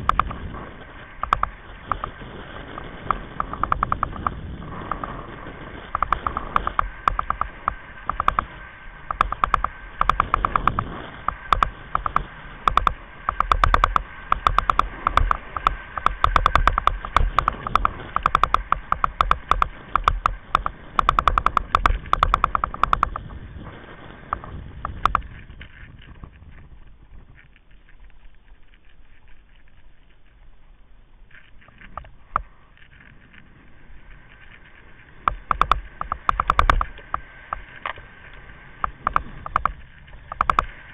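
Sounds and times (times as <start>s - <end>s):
wind and rolling tyres rumble: 0.0s - 40.9s
buggy rattling clicks: 1.2s - 5.1s, 5.9s - 23.3s, 24.3s - 26.4s, 35.2s - 40.9s.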